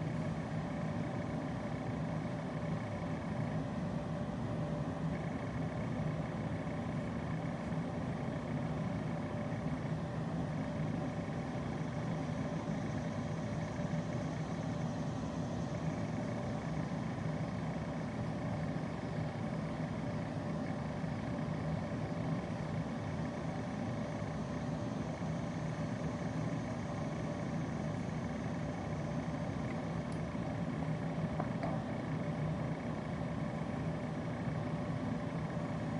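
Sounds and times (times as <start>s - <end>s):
background hum: 0.0s - 35.9s
faint constant tones: 0.0s - 35.9s.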